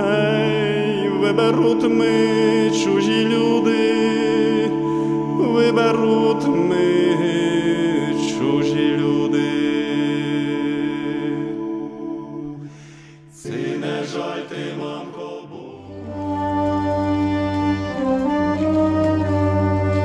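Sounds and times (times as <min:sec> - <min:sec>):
voices singing a slow folk song: 0:00.0 - 0:20.0.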